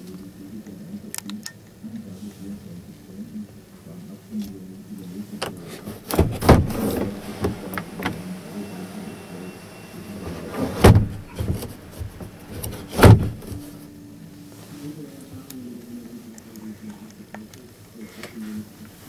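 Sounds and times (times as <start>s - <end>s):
loud thumps: 5.4s - 8.2s, 10.3s - 13.8s
roof hatch clunking and rattling: 5.4s - 8.6s, 10.1s - 13.8s.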